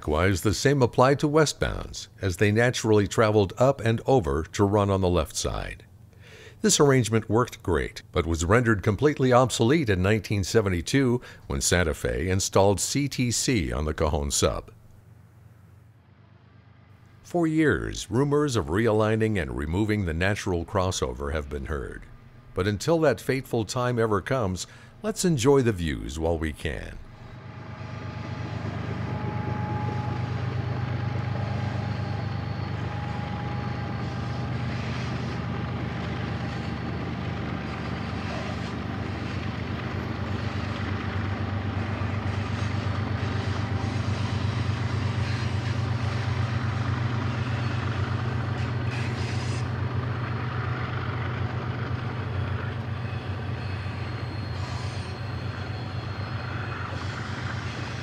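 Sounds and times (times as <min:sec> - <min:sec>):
diesel locomotive engine drone: 0:00.0 - 0:58.0
train rumbling by: 0:26.7 - 0:58.0.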